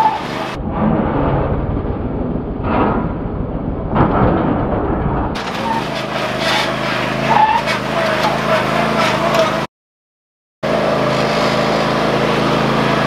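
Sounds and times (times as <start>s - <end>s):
mower engine running: 5.4s - 9.7s, 10.6s - 13.0s.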